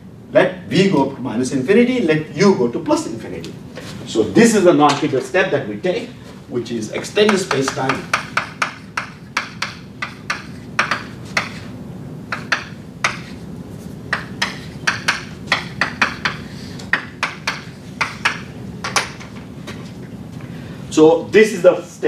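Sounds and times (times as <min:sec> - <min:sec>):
chalk tapping on blackboard: 0:07.2 - 0:11.7, 0:12.3 - 0:13.4, 0:14.1 - 0:19.1.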